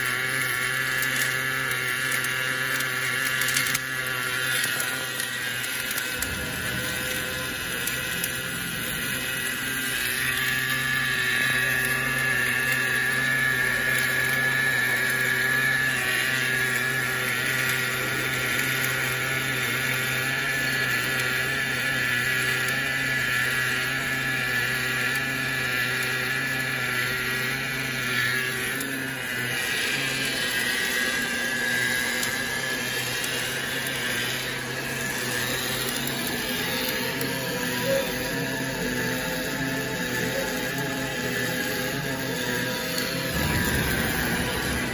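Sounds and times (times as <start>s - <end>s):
welding arc hissing and buzzing: 0.0s - 44.9s
low machine hum: 3.0s - 17.0s, 41.9s - 44.9s.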